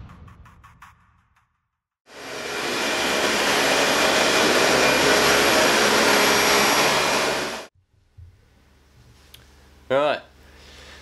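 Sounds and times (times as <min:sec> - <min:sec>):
vacuum cleaner running on carpet: 0:02.1 - 0:07.7.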